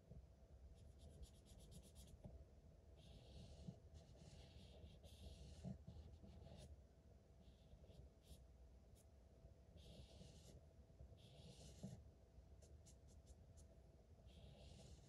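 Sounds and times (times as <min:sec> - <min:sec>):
marker scribbling on paper: 0:03.0 - 0:06.7, 0:09.8 - 0:10.6, 0:11.2 - 0:12.0, 0:14.3 - 0:15.0.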